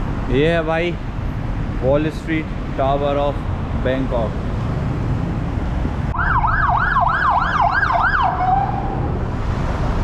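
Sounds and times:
street traffic: 0.0s - 10.0s
emergency siren yelping: 6.1s - 9.0s.

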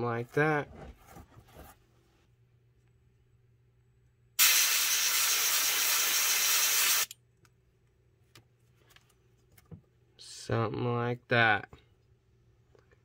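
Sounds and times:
airbrush spraying hiss: 4.4s - 7.1s.

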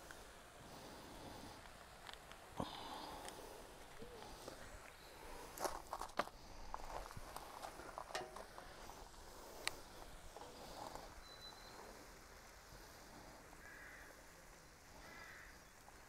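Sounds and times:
faint bird calls: 2.5s - 5.7s, 7.8s - 16.0s.

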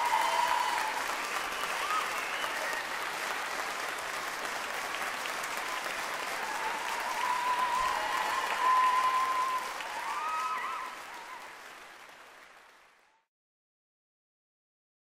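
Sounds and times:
audience applauding: 0.0s - 13.3s.

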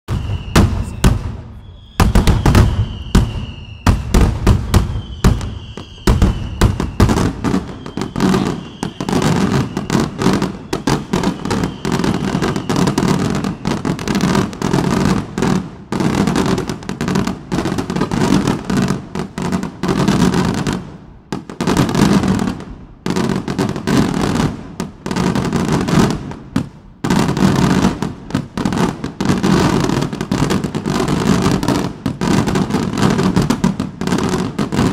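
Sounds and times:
high falling whistle: 0.1s - 14.0s
fireworks bangs and crackling: 0.1s - 34.9s.

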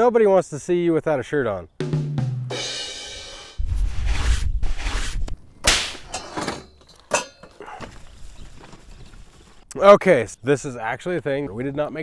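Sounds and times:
sharp whooshes: 3.5s - 6.1s.

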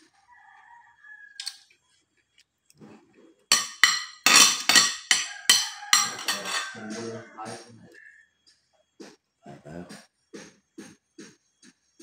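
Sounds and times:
cutlery clinking on a plate: 3.5s - 7.6s.

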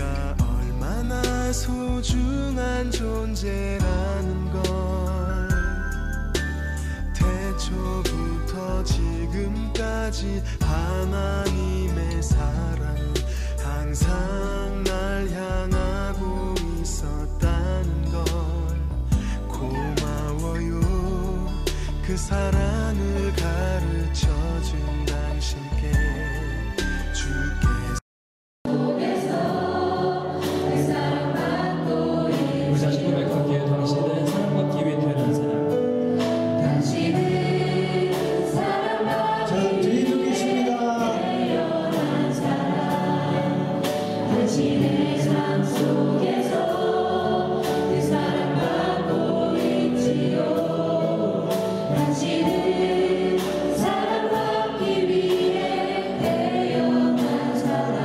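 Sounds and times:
group singing worship song: 0.0s - 6.0s, 28.7s - 35.5s, 36.1s - 58.0s
music accompaniment: 0.0s - 28.0s, 28.7s - 58.0s.

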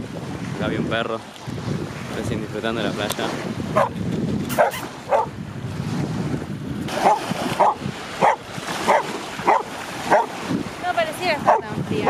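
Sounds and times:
waves lapping at shore: 0.0s - 12.0s
wind on microphone: 0.0s - 12.0s
dog barking: 3.8s - 5.4s, 7.0s - 10.4s, 11.4s - 11.8s.

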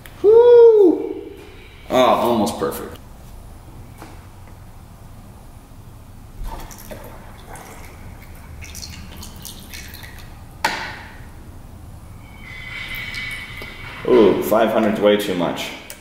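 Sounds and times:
water pouring into plastic bottle: 6.4s - 10.4s.

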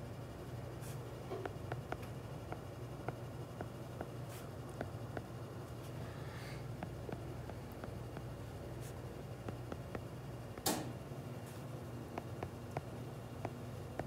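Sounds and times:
taps on touchscreen: 9.4s - 10.8s.

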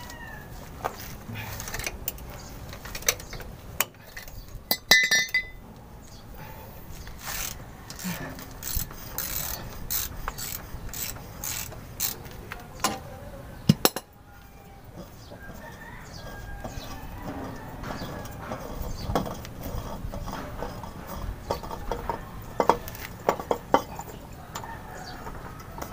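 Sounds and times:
metal knocks and clinks: 4.2s - 5.6s
ratchet wrench clicking: 7.2s - 12.4s.

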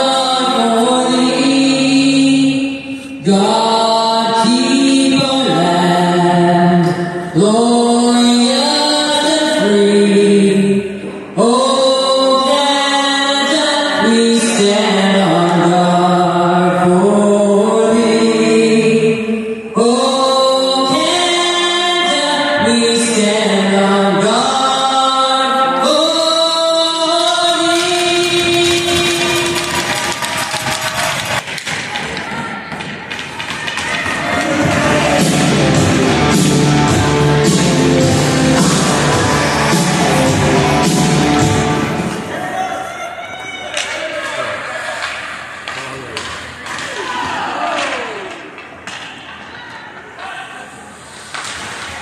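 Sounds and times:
person singing long notes: 0.0s - 29.9s, 34.5s - 42.4s.

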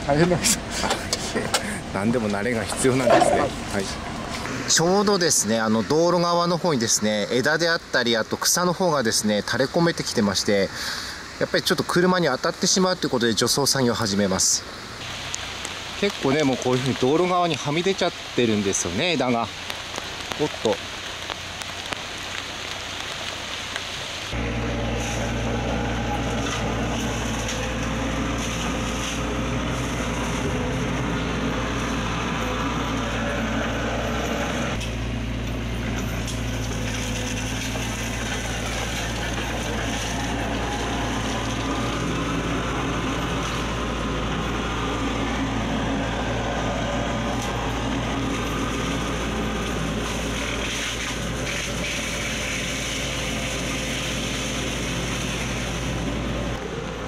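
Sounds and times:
mulcher head shredding branches: 15.0s - 57.0s
excavator engine under load: 24.3s - 57.0s.

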